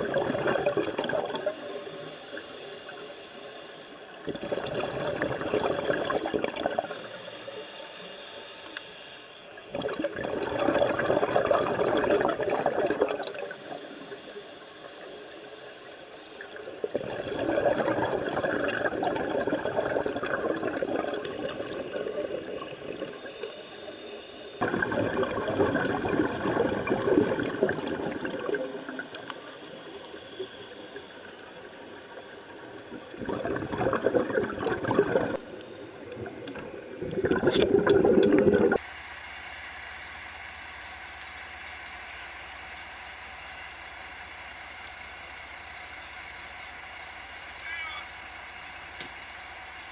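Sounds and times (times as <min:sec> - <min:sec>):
exhaled bubbles rushing: 0:00.0 - 0:01.5, 0:04.2 - 0:06.9, 0:09.7 - 0:13.5, 0:16.8 - 0:23.3, 0:24.6 - 0:29.3, 0:32.8 - 0:35.5, 0:36.1 - 0:38.8
diver breathing in: 0:01.4 - 0:04.0, 0:06.8 - 0:09.5, 0:13.2 - 0:16.9, 0:23.1 - 0:24.6, 0:28.8 - 0:32.7.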